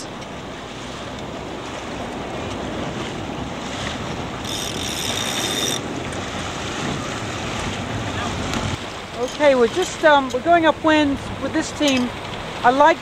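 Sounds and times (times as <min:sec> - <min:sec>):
choppy water: 0:00.0 - 0:13.0
wind buffeting microphone: 0:00.0 - 0:13.0
thin high whine: 0:04.4 - 0:05.8.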